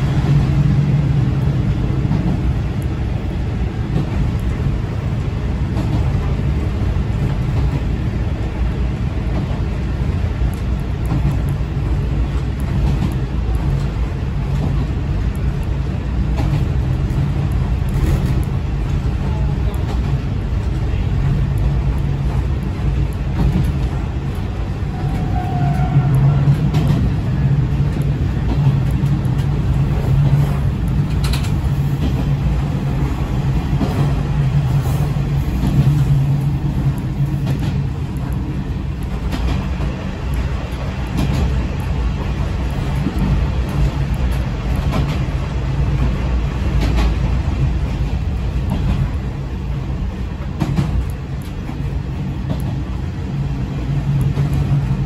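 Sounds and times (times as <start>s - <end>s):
wheels rumbling on rail: 0.0s - 55.0s.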